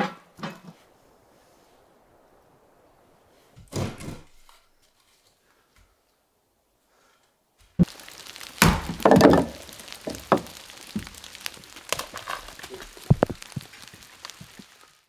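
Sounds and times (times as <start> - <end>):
faint background hiss: 0.0 - 15.0.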